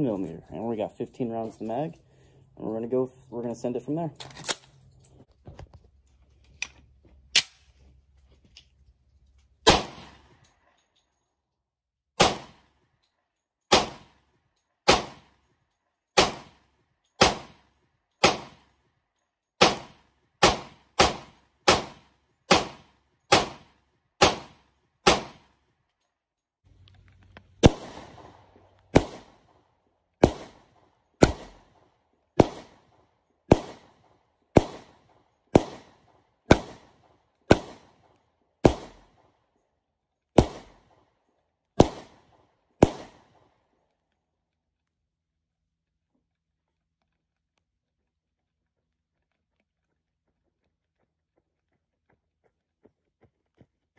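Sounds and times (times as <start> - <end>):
gun handling noise: 4.1 - 9.6, 25.8 - 28.9
pistol shots: 9.6 - 10.4, 12.2 - 12.8, 13.7 - 14.2, 14.9 - 15.4, 16.2 - 18.7, 19.6 - 25.6, 27.6 - 39.3, 40.4 - 41.0, 41.8 - 43.6.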